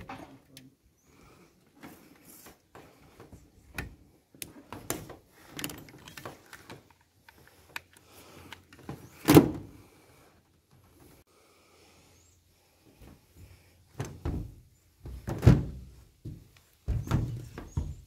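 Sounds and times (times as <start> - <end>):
small clicks and knocks: 3.7 - 9.1.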